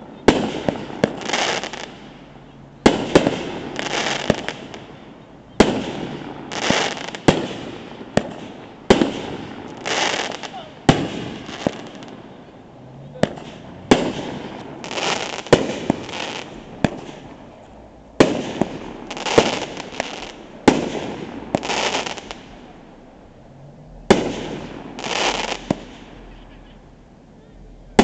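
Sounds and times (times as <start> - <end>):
fireworks bangs: 0.0 - 23.0, 23.6 - 26.7
fireworks hissing rush: 2.9 - 17.6, 18.2 - 22.8, 24.0 - 26.3.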